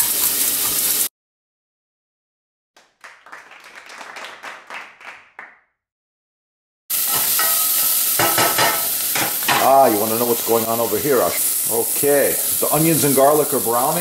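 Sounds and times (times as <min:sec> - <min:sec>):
onions sizzling in a pan: 0:00.0 - 0:01.1, 0:06.9 - 0:14.0.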